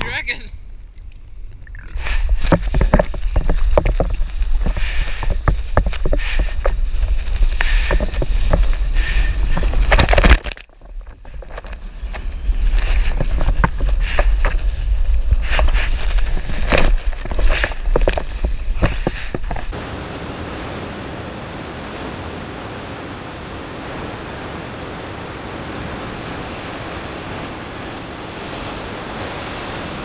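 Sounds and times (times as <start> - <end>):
ocean water rushing and splashing: 19.6 - 30.0.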